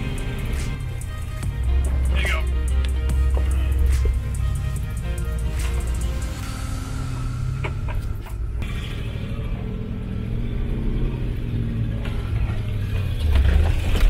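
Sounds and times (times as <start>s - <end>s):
engine low rumble: 0.0s - 14.0s
truck knocks and rattles: 12.0s - 14.0s.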